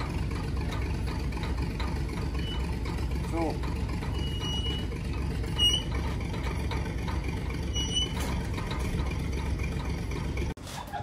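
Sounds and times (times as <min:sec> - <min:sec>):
crane engine rumbling: 0:00.0 - 0:11.0
short high squeaks: 0:02.3 - 0:02.8, 0:04.0 - 0:06.2, 0:07.6 - 0:08.5.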